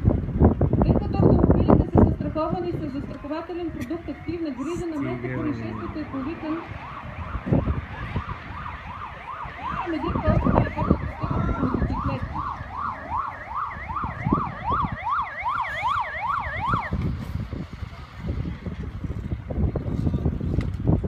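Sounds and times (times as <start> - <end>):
siren yelping: 4.0 - 17.0.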